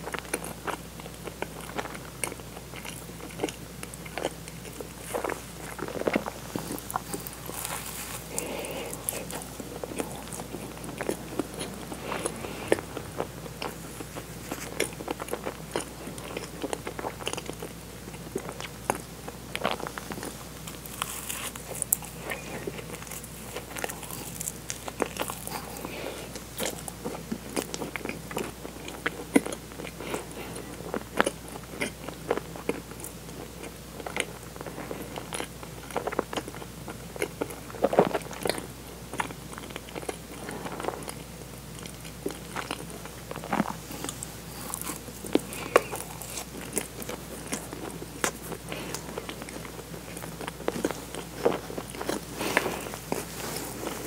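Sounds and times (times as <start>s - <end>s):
biting and chewing: 0.0s - 54.0s.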